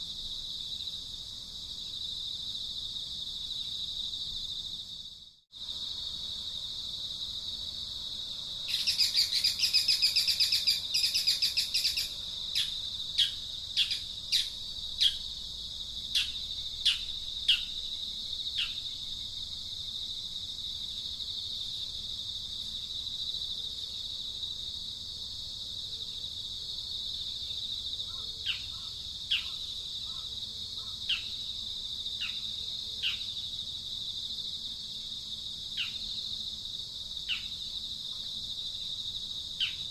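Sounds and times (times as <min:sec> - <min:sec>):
insects droning: 0:00.0 - 0:39.9
bird calling: 0:08.7 - 0:15.2.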